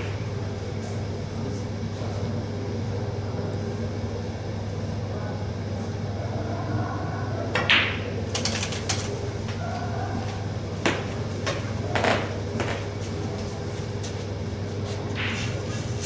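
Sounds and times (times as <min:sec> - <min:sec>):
low room hum: 0:00.0 - 0:16.0
snooker cue striking ball: 0:07.5 - 0:08.0
snooker balls colliding: 0:07.5 - 0:12.9.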